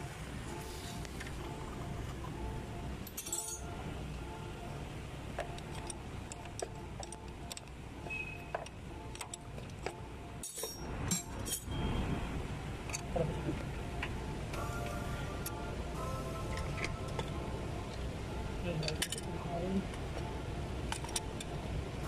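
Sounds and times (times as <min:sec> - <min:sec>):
socket wrench clinks and rattles: 0:03.0 - 0:03.7, 0:08.6 - 0:11.7
background music: 0:12.9 - 0:22.0.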